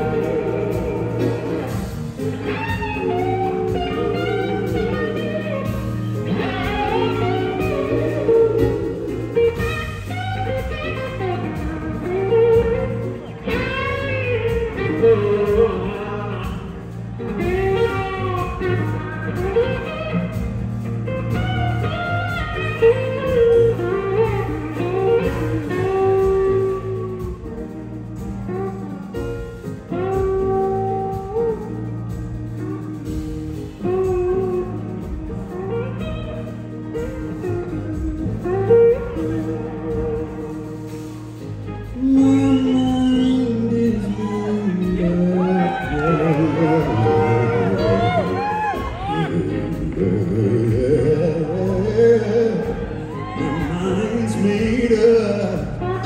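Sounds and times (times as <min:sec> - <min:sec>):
electric slide guitar solo: 0:00.0 - 0:27.7, 0:33.8 - 0:50.1
blues-rock band playing: 0:00.0 - 0:56.0.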